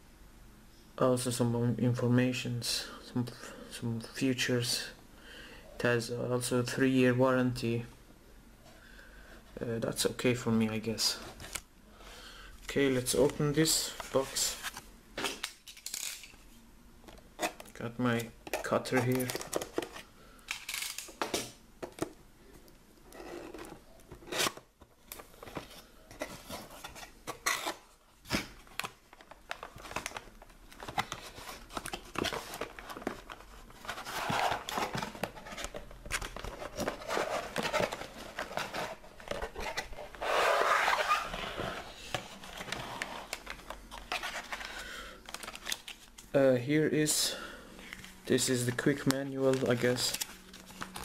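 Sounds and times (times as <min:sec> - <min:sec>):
cardboard and paper rustling: 0:23.2 - 0:46.2, 0:48.0 - 0:51.0.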